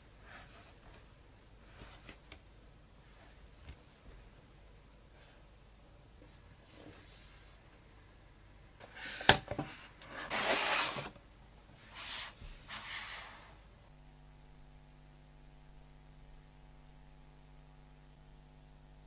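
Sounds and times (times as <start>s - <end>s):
faint steady hum: 0.0s - 19.0s
cardboard scraping slide: 10.0s - 11.2s, 11.9s - 13.6s.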